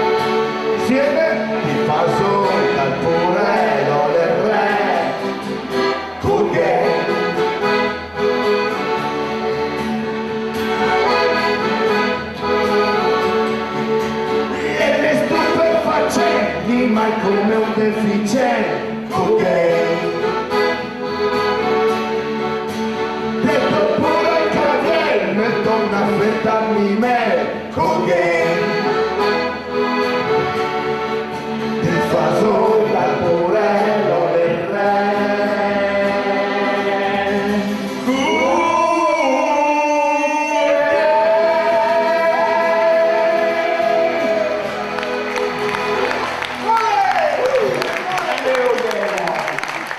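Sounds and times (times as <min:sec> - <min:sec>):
strummed acoustic guitar: 0:00.0 - 0:46.6
accordion chords: 0:00.0 - 0:49.9
people singing: 0:01.4 - 0:07.8, 0:14.5 - 0:20.7, 0:23.4 - 0:29.1, 0:31.8 - 0:45.3
men singing held notes: 0:31.8 - 0:45.0.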